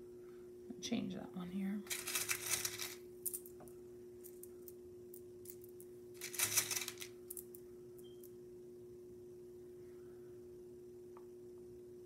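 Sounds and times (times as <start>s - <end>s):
shell pieces clinking and rattling: 1.9s - 3.6s, 5.4s - 7.6s.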